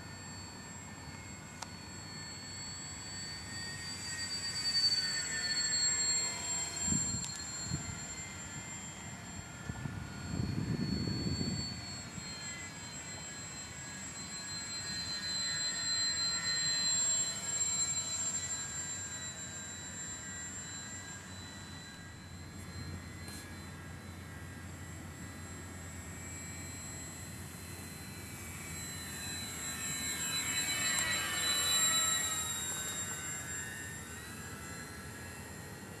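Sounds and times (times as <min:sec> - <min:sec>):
model airplane motor whine: 0:00.0 - 0:36.0
wind rumbling on microphone: 0:09.7 - 0:11.8.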